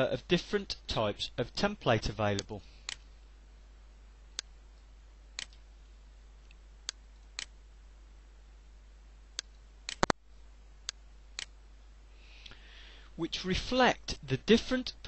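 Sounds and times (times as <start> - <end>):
faint low hum: 0.0 - 15.0
computer mouse clicking: 9.4 - 10.2.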